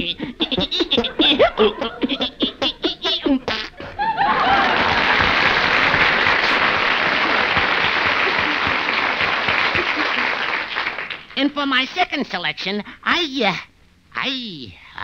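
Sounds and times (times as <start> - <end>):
cartoon voice vocal blurts: 0.0 - 3.8
audience applause and laughter: 3.7 - 11.4.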